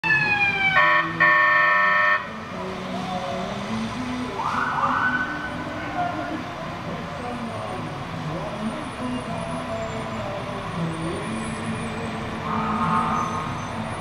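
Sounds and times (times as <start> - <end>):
fire engine siren wailing: 0.0 - 2.4, 4.3 - 6.5, 12.3 - 14.0
loud horn blasts: 0.8 - 2.3.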